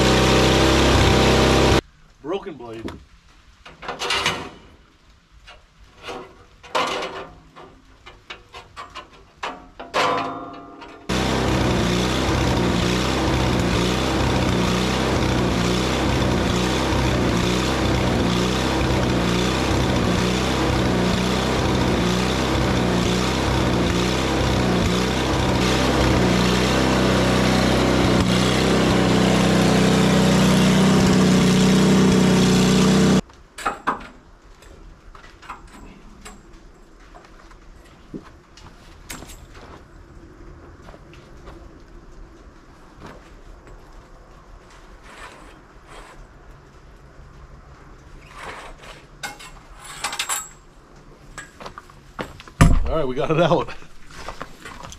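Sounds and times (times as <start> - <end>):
sawmill motor running: 0.0 - 1.8, 11.1 - 33.2
knocks and clanks: 5.5 - 13.9.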